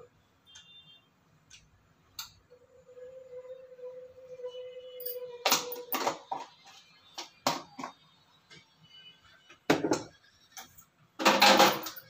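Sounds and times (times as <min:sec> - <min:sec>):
pots and utensils clattering: 0:11.2 - 0:12.0.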